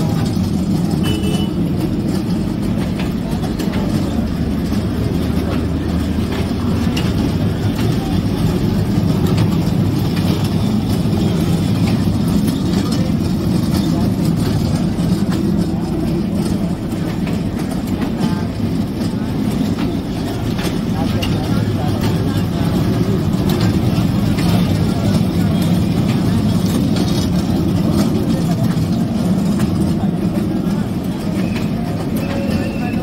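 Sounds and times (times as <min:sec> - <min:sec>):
kiddie train rumbling on track: 0:00.0 - 0:33.0.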